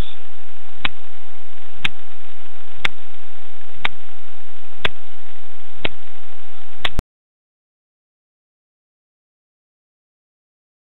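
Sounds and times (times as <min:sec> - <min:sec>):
faint whine: 0:00.0 - 0:07.0.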